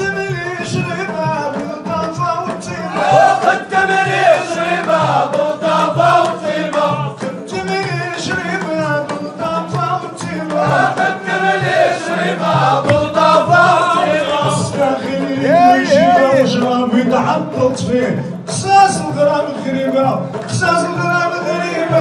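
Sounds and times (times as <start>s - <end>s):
clapped and struck beats: 0.0s - 22.0s
lead singers on microphones: 0.0s - 22.0s
men chanting in unison: 2.7s - 17.6s, 20.7s - 22.0s.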